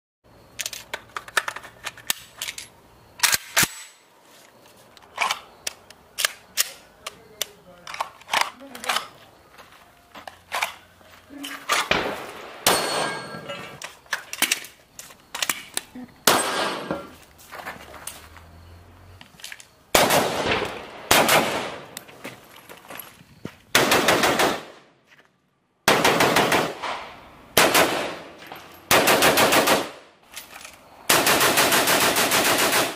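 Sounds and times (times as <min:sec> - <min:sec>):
rifle single shots echoing: 0:11.9 - 0:13.4, 0:16.2 - 0:17.0, 0:19.9 - 0:22.0, 0:25.9 - 0:30.1
rapid rifle fire: 0:20.0 - 0:21.8, 0:23.8 - 0:24.8, 0:25.9 - 0:27.0, 0:27.6 - 0:28.3, 0:28.9 - 0:30.0, 0:31.1 - 0:32.9.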